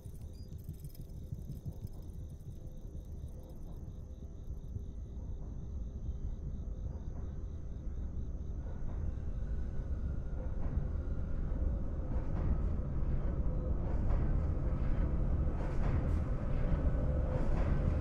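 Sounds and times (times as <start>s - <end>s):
crickets chirping: 0.0s - 9.4s
distant train rumble: 0.0s - 18.0s.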